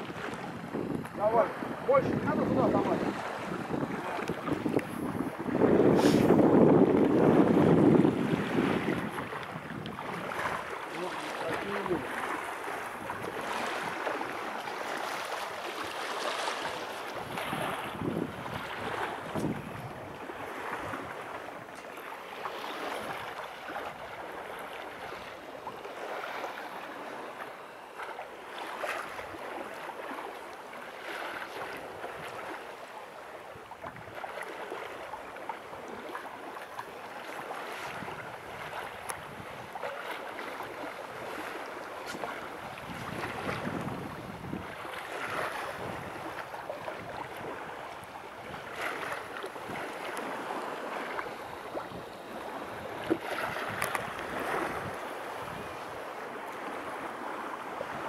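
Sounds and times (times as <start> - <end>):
wind on microphone: 0.0 - 21.8, 37.7 - 39.8, 40.6 - 58.0
water rushing along hull: 0.0 - 58.0.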